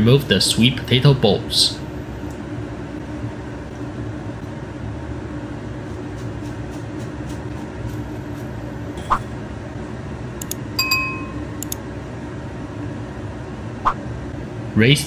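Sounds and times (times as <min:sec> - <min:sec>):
low kitchen hum: 0:00.0 - 0:15.0.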